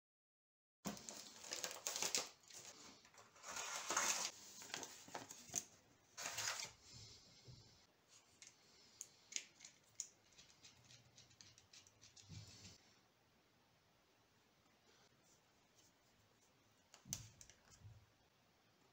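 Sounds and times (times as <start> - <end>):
paper packaging rustling: 0.9 - 6.8.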